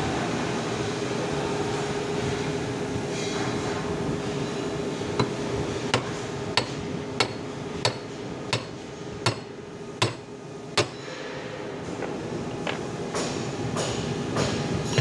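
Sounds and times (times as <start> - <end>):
sharp taps on fan motor: 5.2 - 10.2.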